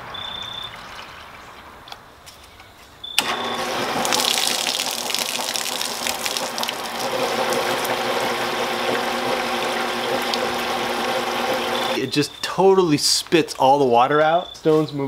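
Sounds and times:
motor humming: 0:03.2 - 0:12.0
water spraying and splashing: 0:03.6 - 0:12.0.

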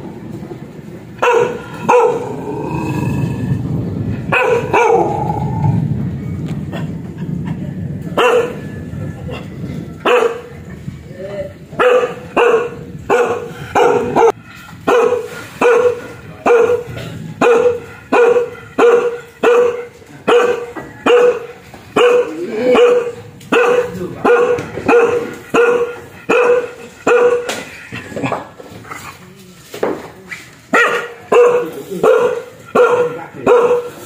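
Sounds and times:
dog barking fiercely: 0:01.2 - 0:03.2, 0:04.2 - 0:05.6, 0:08.2 - 0:08.7, 0:10.0 - 0:10.5, 0:11.8 - 0:28.4, 0:30.7 - 0:34.0.

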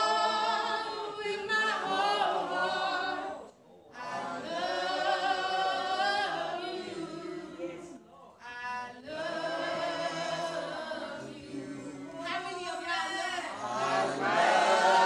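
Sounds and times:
worship singing: 0:00.0 - 0:15.0.

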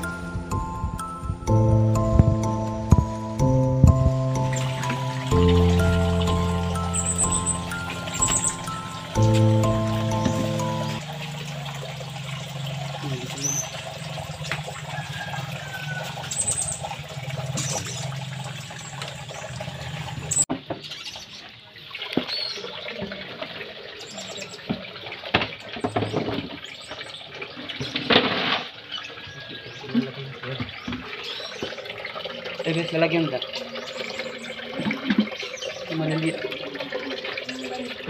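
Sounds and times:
low hum: 0:00.0 - 0:15.0
eels splashing in water: 0:10.2 - 0:20.5.

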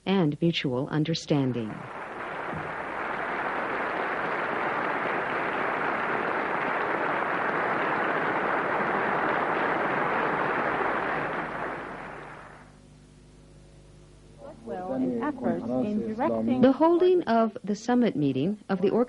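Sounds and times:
large audience applauding: 0:01.6 - 0:12.7.

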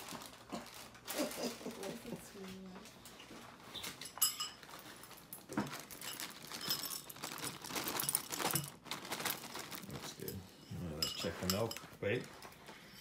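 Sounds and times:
cereal rattling into a bowl: 0:05.2 - 0:10.4.

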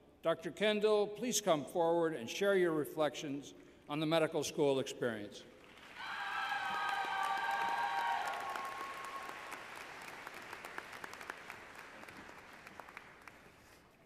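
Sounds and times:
audience applauding: 0:05.6 - 0:13.8.

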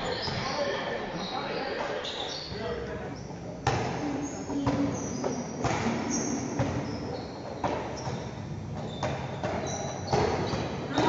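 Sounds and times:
shoe squeaks: 0:00.0 - 0:03.4, 0:04.1 - 0:11.0
echoing hall noise: 0:00.0 - 0:11.0
basketball bouncing: 0:03.6 - 0:11.0.

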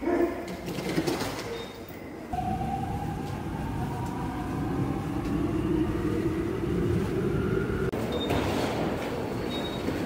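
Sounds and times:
subway train rumble: 0:02.3 - 0:10.0.

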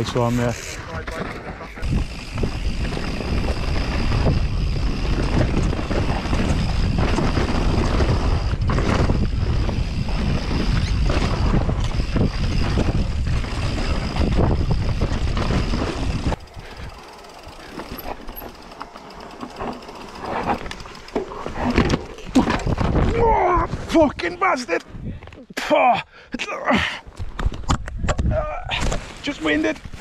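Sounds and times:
tyres rumbling and bike rattling: 0:00.0 - 0:23.6
wind buffeting microphone: 0:01.7 - 0:18.4.

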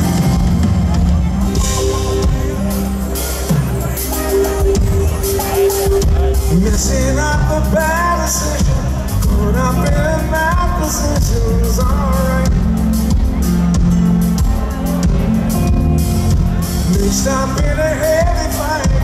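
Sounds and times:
pop-rock band playing: 0:00.0 - 0:19.0
man singing: 0:01.6 - 0:15.5, 0:16.3 - 0:19.0.

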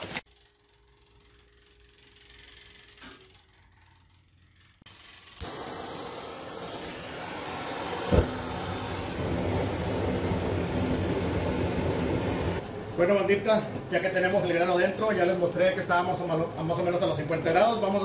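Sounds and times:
gas burner flame rushing: 0:04.9 - 0:18.0.

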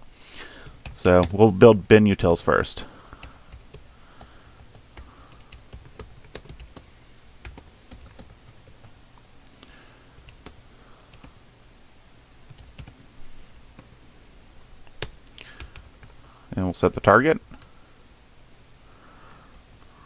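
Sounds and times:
faint low hum: 0:00.0 - 0:20.0
computer keyboard typing: 0:00.6 - 0:01.5, 0:03.2 - 0:09.0, 0:10.2 - 0:11.3, 0:12.5 - 0:13.0, 0:15.0 - 0:16.2.

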